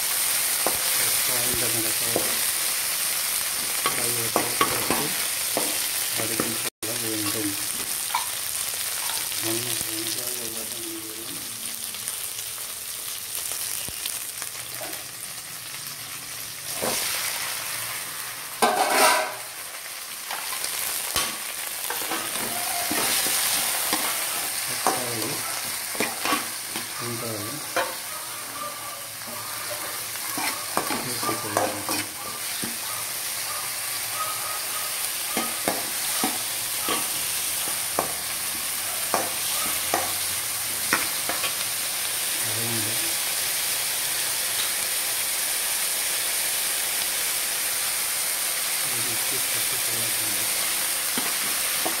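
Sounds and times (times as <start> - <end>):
food sizzling in hot oil: 0.0 - 52.0
spatula scraping a pan: 18.6 - 19.6, 20.3 - 33.4, 34.6 - 40.2.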